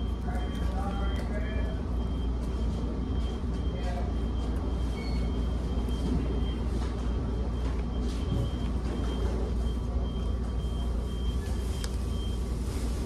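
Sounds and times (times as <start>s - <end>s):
low rumble of room noise: 0.0s - 13.0s.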